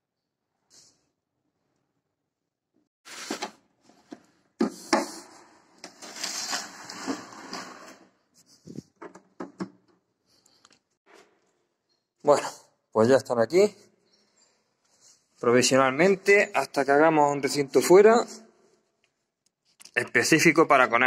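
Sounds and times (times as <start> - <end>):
plastic cage base scraping: 5.8 - 9.0.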